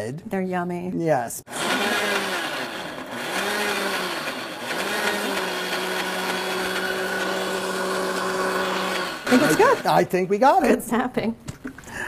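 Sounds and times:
blender motor pureeing fruit: 0:01.5 - 0:10.1.

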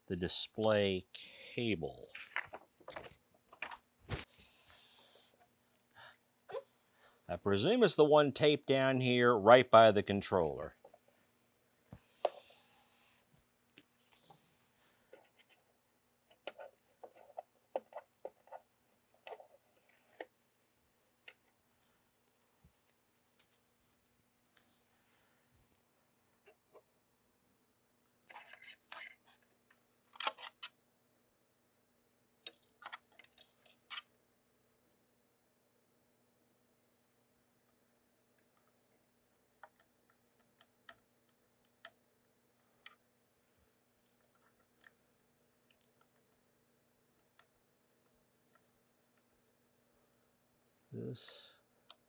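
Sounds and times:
faint steady hum: 0:00.0 - 0:52.0
faint clicks and taps: 0:37.6 - 0:43.0.

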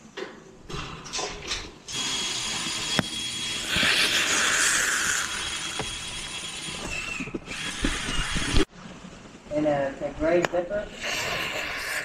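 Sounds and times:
thermite charge hissing and crackling: 0:03.6 - 0:05.8.

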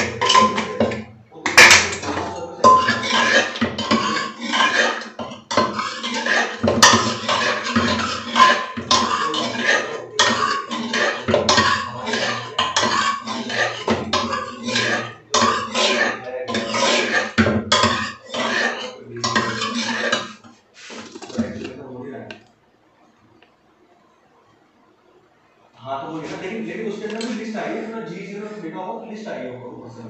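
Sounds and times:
utensils and dishes clattering: 0:00.0 - 0:21.8, 0:27.0 - 0:27.6.

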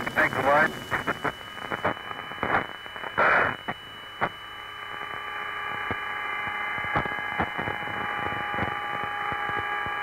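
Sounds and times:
loud burst of static: 0:00.0 - 0:03.6
faint steady tones: 0:00.0 - 0:10.0
radio hiss and hum: 0:00.0 - 0:10.0.

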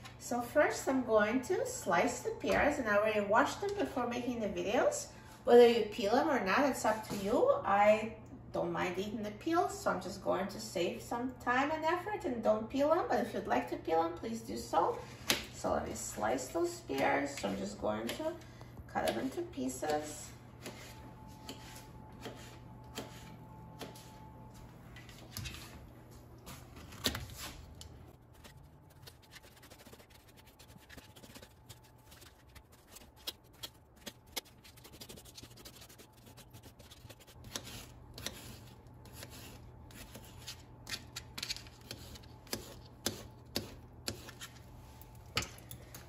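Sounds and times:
knife slicing pears: 0:19.0 - 0:24.1.

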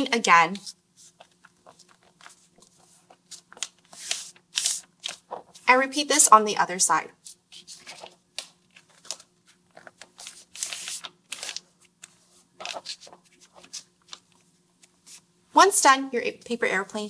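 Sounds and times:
faint steady hum: 0:00.0 - 0:17.0
paper rustling and crinkling: 0:00.6 - 0:05.7, 0:07.3 - 0:15.2.

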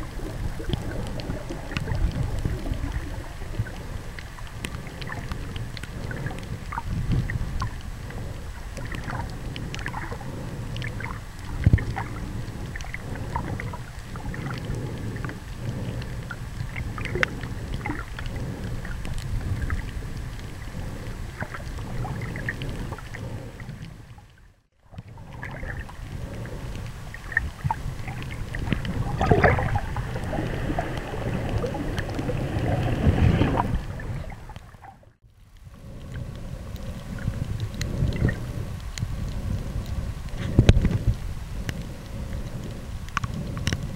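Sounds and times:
underwater rumble and slosh: 0:00.0 - 0:43.9
short clicks and crackles: 0:35.4 - 0:43.9.

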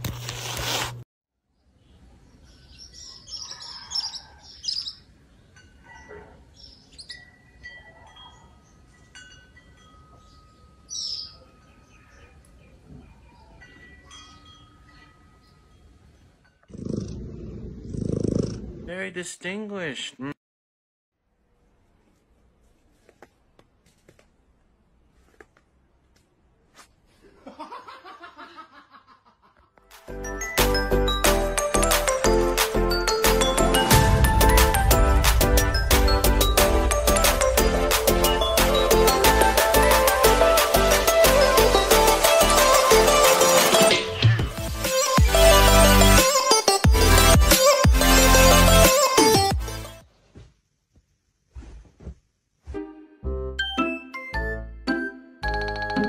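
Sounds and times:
birds chirping: 0:01.6 - 0:09.0, 0:10.2 - 0:16.2
wind chimes ringing: 0:05.4 - 0:06.0, 0:06.8 - 0:12.2, 0:13.4 - 0:16.7
person laughing: 0:27.2 - 0:29.7.

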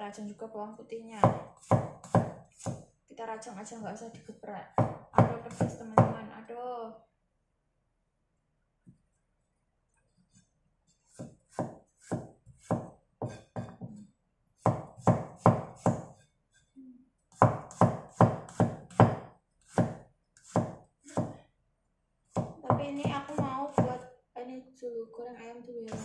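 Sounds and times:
cleaver chopping on cutting board: 0:01.2 - 0:02.9, 0:04.8 - 0:06.2, 0:11.1 - 0:14.0, 0:14.6 - 0:16.2, 0:17.4 - 0:21.4, 0:22.3 - 0:24.0.

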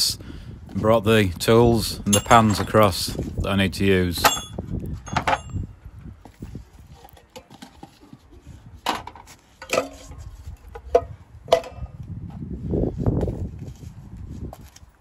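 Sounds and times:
metal tools clinking on paving: 0:01.8 - 0:03.3, 0:04.1 - 0:05.7
shuffling footsteps: 0:06.0 - 0:10.6, 0:12.3 - 0:15.0.

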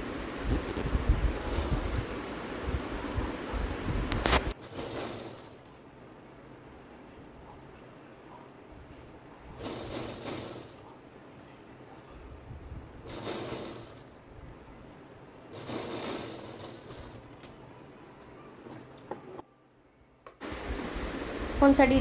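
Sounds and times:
sewing machine running: 0:04.6 - 0:05.7, 0:09.6 - 0:10.9, 0:13.0 - 0:14.1, 0:15.5 - 0:17.3.

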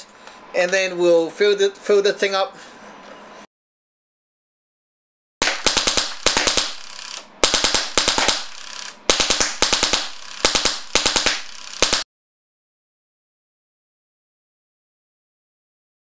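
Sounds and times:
paintball marker firing: 0:05.4 - 0:12.0.

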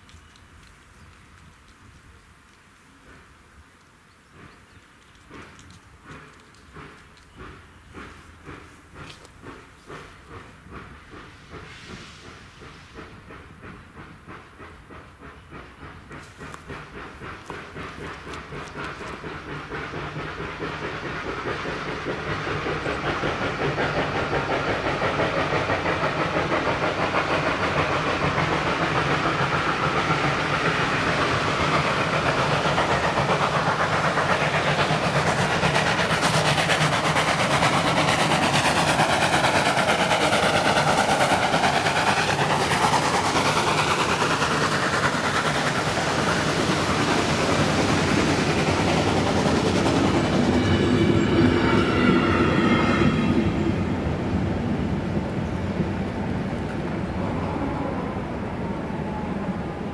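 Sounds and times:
train coaches rolling: 0:00.0 - 0:59.9
train passing: 0:00.0 - 0:59.9.

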